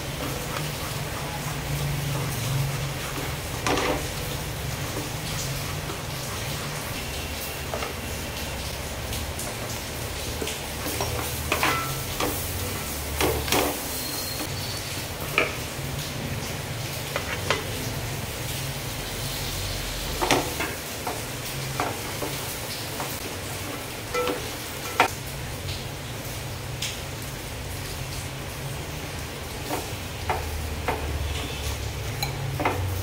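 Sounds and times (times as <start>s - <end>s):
food sizzling in oil: 0.0s - 33.0s.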